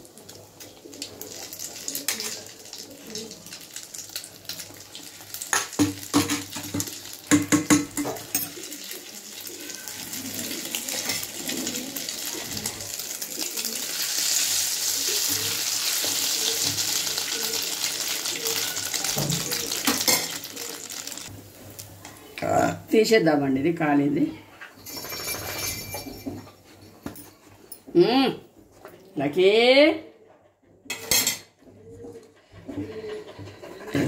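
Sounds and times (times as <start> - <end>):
oil sizzling: 0.0 - 22.1
metal ladle clinking pan: 18.6 - 20.4.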